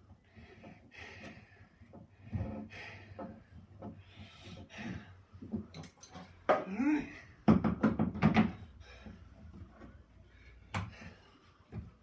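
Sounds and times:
man breathing heavily: 0.1 - 5.5, 8.6 - 12.0.

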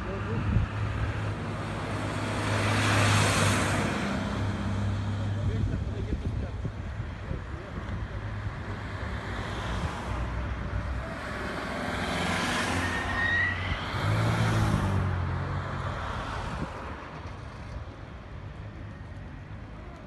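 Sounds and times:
cars passing on highway: 0.0 - 20.0.

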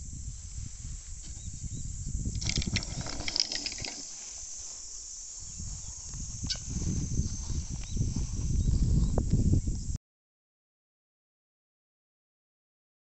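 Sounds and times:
wind buffeting microphone: 0.0 - 10.0
glider skidding across grass: 2.4 - 8.6.

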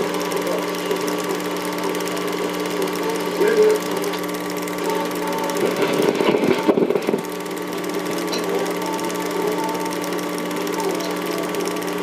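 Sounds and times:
film projector whirring: 0.0 - 12.0.

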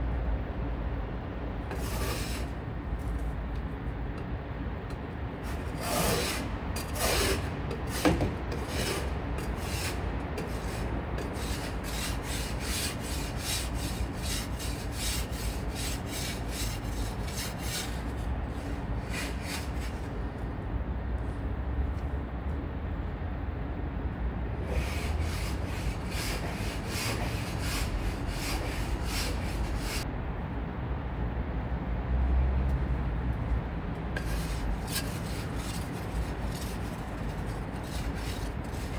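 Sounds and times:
ice scraper scraping car window: 1.7 - 2.5, 5.4 - 18.0, 34.2 - 38.9.

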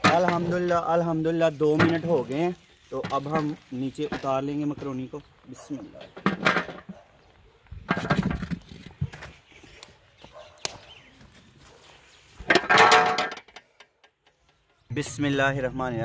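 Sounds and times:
knocks of metal and wood: 0.0 - 0.9, 1.7 - 2.2, 5.9 - 7.0, 7.8 - 8.6, 12.4 - 14.5.

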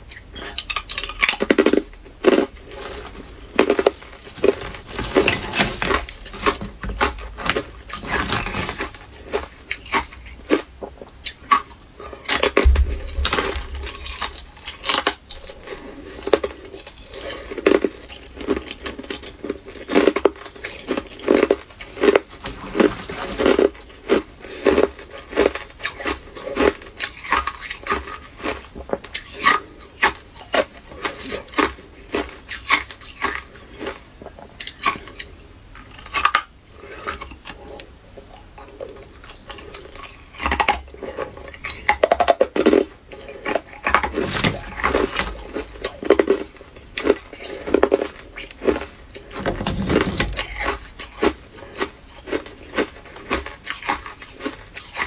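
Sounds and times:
ice being chewed: 0.1 - 55.0
plastic bag crinkling: 2.3 - 9.4, 12.3 - 19.8.

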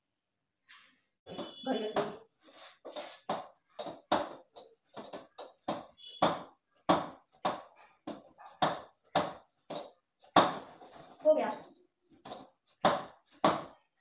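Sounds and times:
dough knocking and slapping: 2.9 - 13.9.

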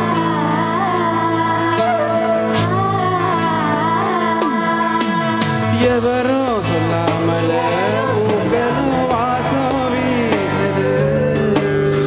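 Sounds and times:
keyboard chords: 0.0 - 12.0
person singing melody: 0.0 - 12.0
sustained bass notes: 0.0 - 12.0.

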